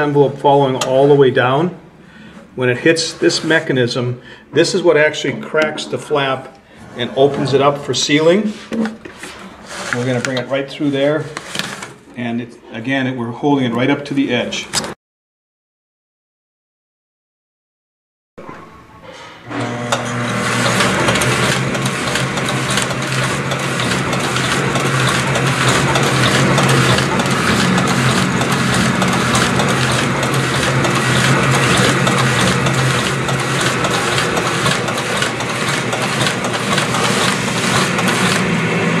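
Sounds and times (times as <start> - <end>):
envelope sealer machine humming: 8.5 - 12.1, 19.2 - 39.0.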